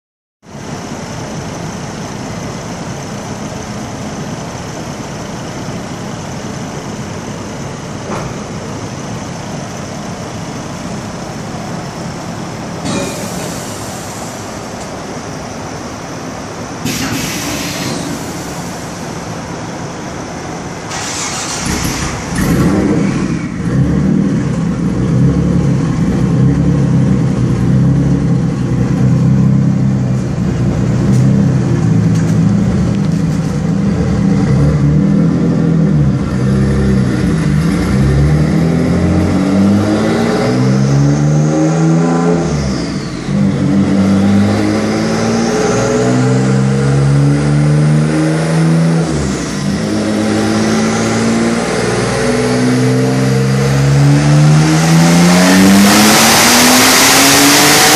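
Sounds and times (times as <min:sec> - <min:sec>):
car engine running on dyno: 0:00.5 - 0:57.9.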